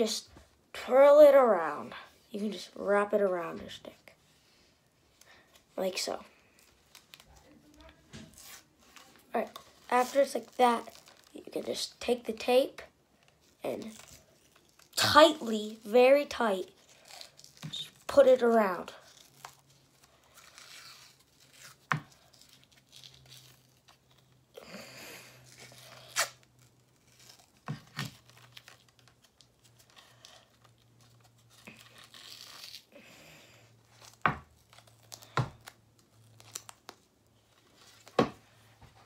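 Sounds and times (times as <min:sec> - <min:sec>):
tape ripping from roll: 0:06.8 - 0:11.4, 0:18.9 - 0:24.4, 0:25.3 - 0:33.0, 0:33.9 - 0:37.0.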